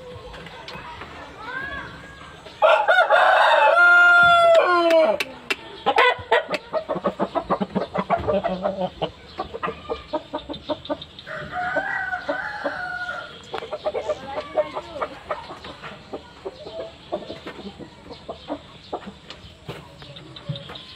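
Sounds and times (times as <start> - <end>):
chicken clucking: 2.2 - 20.9
rooster crowing: 2.6 - 5.2, 11.3 - 13.4.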